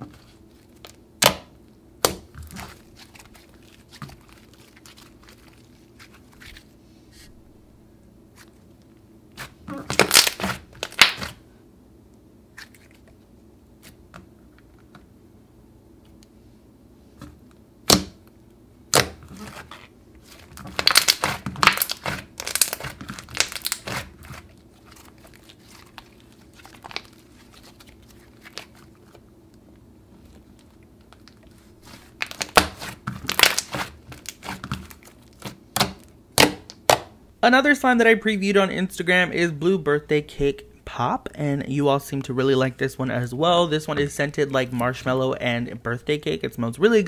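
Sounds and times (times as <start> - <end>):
clay slime crackling: 0.0 - 7.4, 9.4 - 11.4, 18.9 - 37.1.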